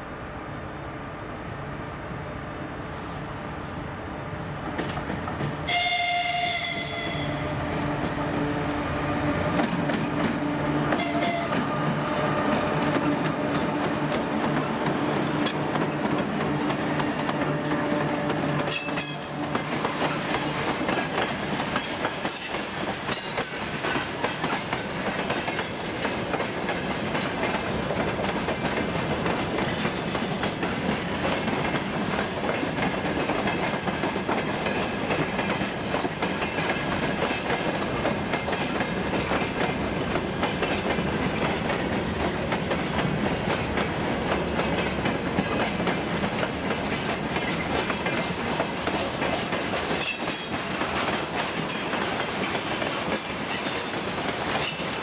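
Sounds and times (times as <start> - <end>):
diesel locomotive engines: 0.0 - 55.0
freight wagons clickety-clack: 4.6 - 5.8, 9.1 - 55.0
locomotive horn blast: 5.7 - 9.5, 10.4 - 13.8.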